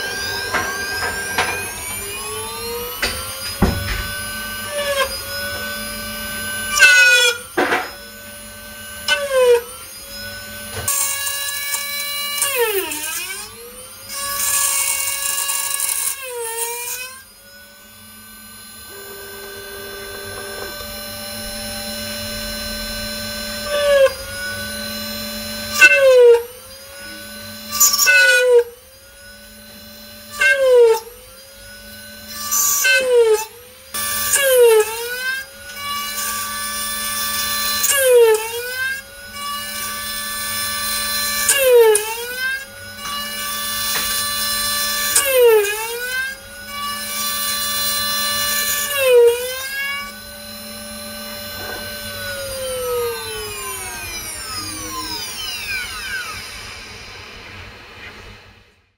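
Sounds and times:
mill spindle whining: 0.0 - 12.4, 17.7 - 28.1, 49.6 - 58.8.

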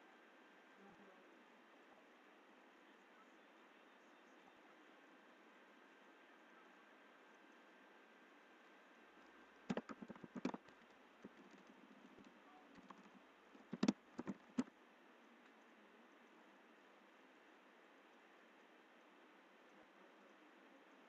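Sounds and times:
typing on computer keyboard: 9.7 - 14.7.

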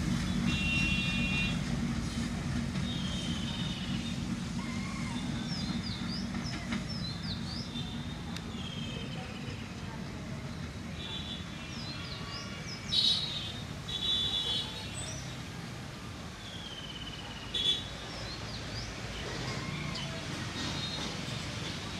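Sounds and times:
locomotive engine rumbling: 0.0 - 11.6.

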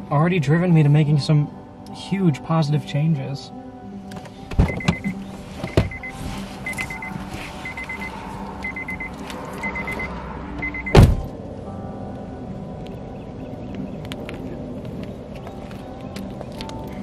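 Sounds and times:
car door shutting thud: 4.1 - 6.1, 10.9 - 11.3
car warning chime beeping: 4.6 - 11.3.

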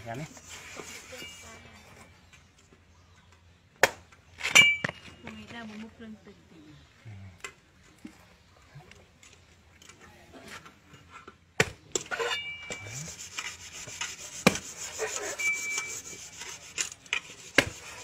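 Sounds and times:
cleaver chopping coconut husk: 3.8 - 4.1, 12.8 - 15.0, 17.2 - 18.0
rasping scraping cuts: 12.0 - 18.0.

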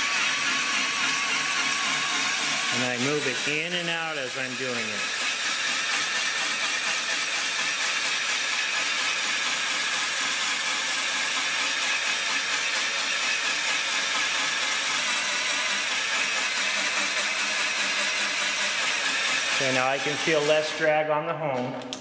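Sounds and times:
cordless drill running: 0.0 - 21.1
hone stones grinding metal bore: 0.0 - 21.3.

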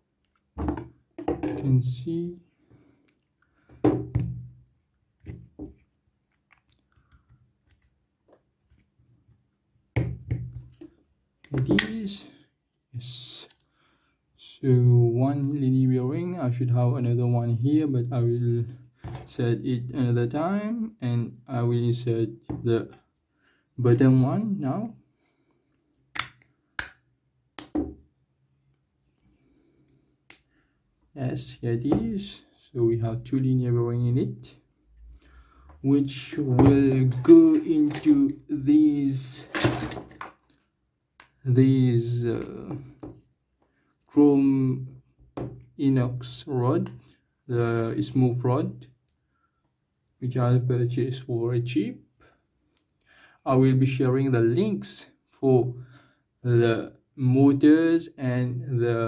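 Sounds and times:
faint clicks of plastic part: 5.2 - 8.9, 13.4 - 13.7
metal and plastic snapping clicks: 26.1 - 27.0.

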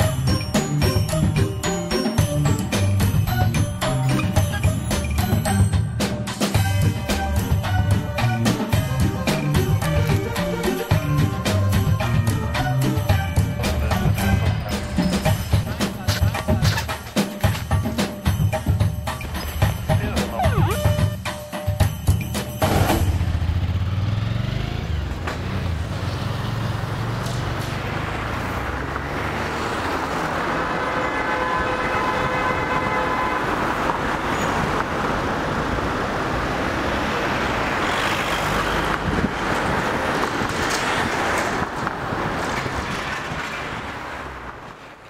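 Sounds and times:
passing vehicles: 22.6 - 45.0
vehicle horn: 30.8 - 34.4.

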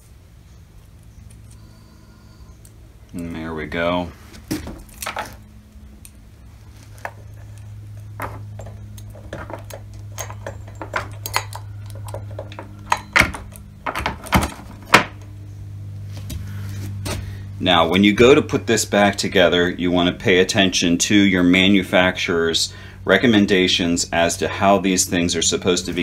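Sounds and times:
steady low hum: 0.0 - 26.0
saw chain clinking and rattling: 8.2 - 13.2.

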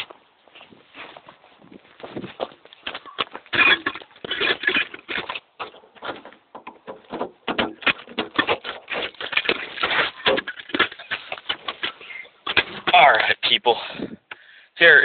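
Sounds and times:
footsteps on gravel: 0.0 - 13.3.

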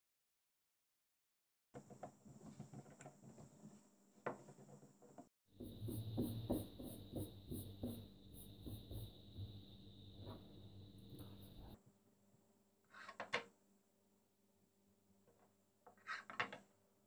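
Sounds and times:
rolling pin rolling dough on board: 4.3 - 11.8
knock on wooden board: 5.6 - 9.6
faint hum: 5.6 - 11.8.

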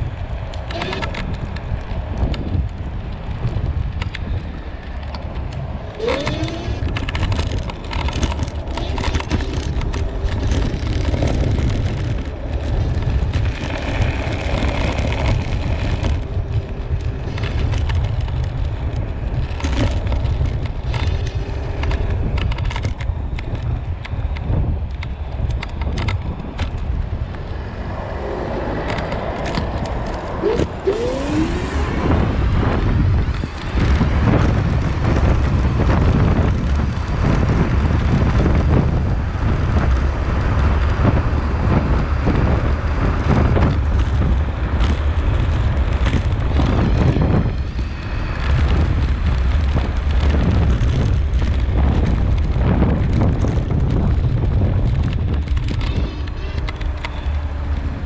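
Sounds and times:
tyre rumble on asphalt: 0.0 - 58.0
wind buffeting on microphone: 0.0 - 58.0
short rising whine: 30.2 - 32.8.

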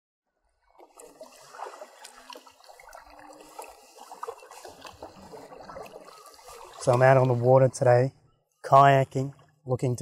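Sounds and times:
water lapping around kayak: 0.4 - 10.0
small splashes: 0.6 - 7.8.

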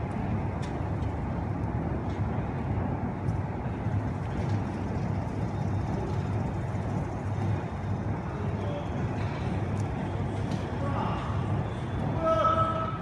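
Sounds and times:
stretch wrapper machine rumbling: 0.0 - 12.2.

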